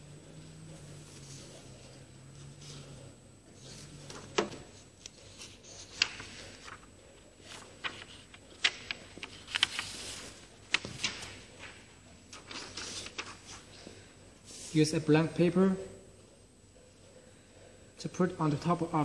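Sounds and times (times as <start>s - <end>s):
faint low hum: 0.0s - 19.0s
paper rustling: 3.6s - 14.8s.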